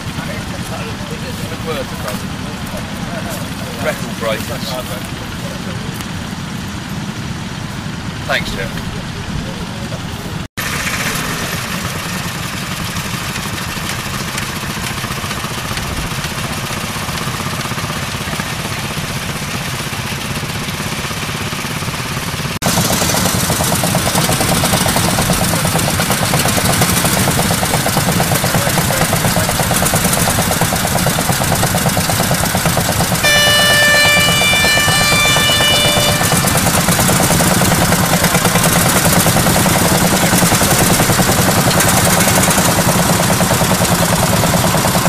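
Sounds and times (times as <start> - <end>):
tractor engines chugging: 0.0 - 45.0
horn blasts: 33.0 - 38.2.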